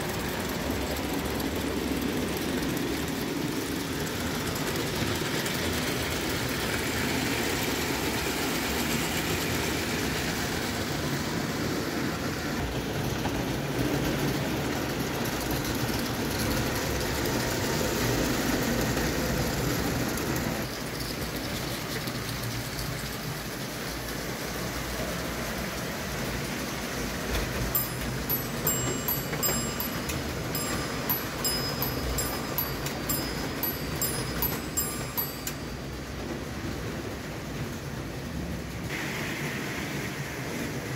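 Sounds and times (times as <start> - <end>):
toy train wheels clattering on rails: 0.0 - 10.2, 13.0 - 36.8.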